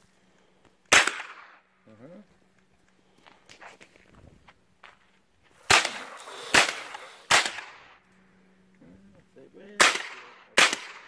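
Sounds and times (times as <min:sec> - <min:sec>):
rifle shots with echo: 0:00.9 - 0:01.6, 0:05.6 - 0:08.0, 0:09.8 - 0:11.0.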